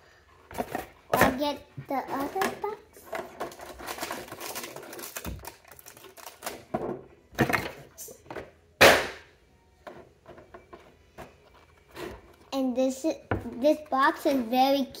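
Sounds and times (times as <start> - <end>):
toy boxes and plastic case handled: 0.4 - 6.8, 9.8 - 12.5.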